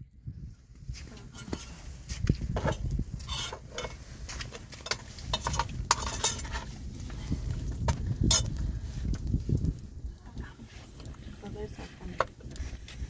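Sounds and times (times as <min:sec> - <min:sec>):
iron pan scraping on embers: 0:00.9 - 0:09.2, 0:10.2 - 0:13.0.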